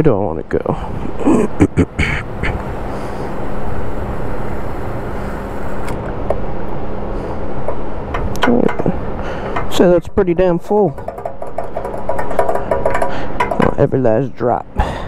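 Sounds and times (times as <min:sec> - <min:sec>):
fuel pump humming: 0:00.8 - 0:10.0, 0:10.6 - 0:14.0
fuel rushing and gurgling: 0:01.8 - 0:09.8, 0:10.8 - 0:13.8
nozzle clicks: 0:05.6 - 0:06.4, 0:07.6 - 0:09.8.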